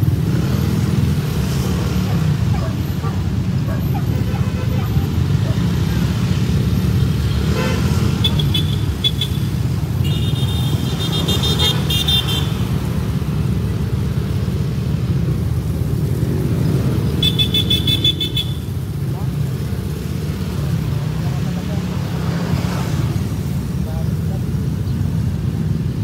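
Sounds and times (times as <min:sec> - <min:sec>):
motorcycle and scooter engines: 0:00.0 - 0:26.0
road noise: 0:00.0 - 0:26.0
horns honking: 0:02.9 - 0:06.1, 0:07.0 - 0:13.0, 0:17.0 - 0:19.0.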